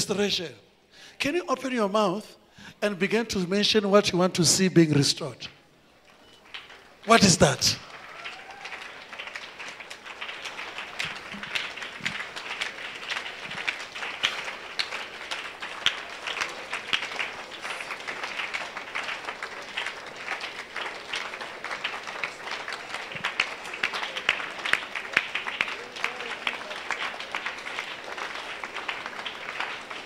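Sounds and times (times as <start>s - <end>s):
crowd noise: 5.2s - 30.0s
congregation clapping: 6.0s - 30.0s.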